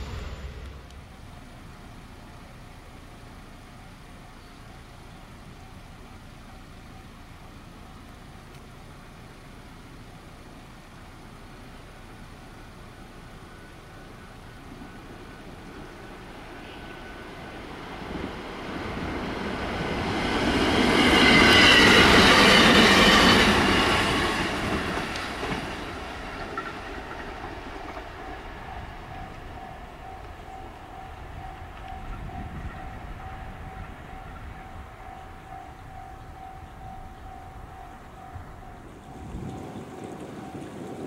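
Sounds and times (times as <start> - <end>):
faint pulsing tone: 0.0 - 2.5, 28.1 - 41.0
electric train passing: 0.0 - 8.4, 9.9 - 41.0.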